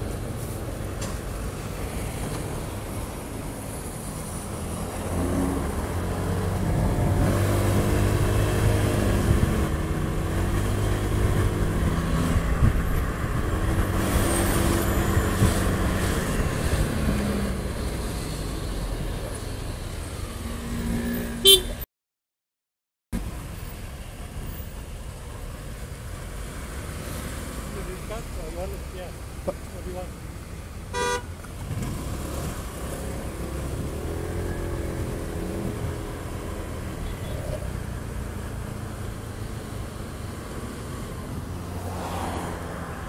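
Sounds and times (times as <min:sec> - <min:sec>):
horn honking: 0:21.4 - 0:21.8, 0:30.9 - 0:31.4.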